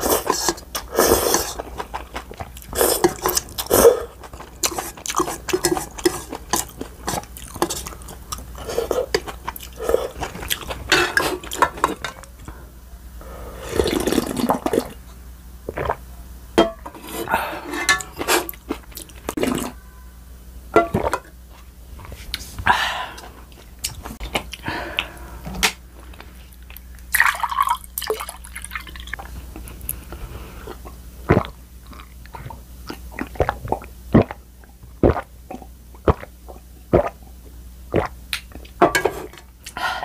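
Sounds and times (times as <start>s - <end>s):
chewing and mouth noises: 0.0s - 12.5s, 26.0s - 37.1s
utensils clinking against dishes: 10.9s - 12.3s, 16.6s - 18.6s.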